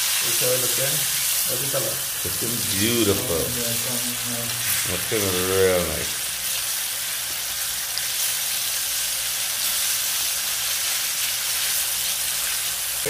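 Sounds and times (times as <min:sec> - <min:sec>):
fish deep-frying in oil: 0:00.0 - 0:13.0.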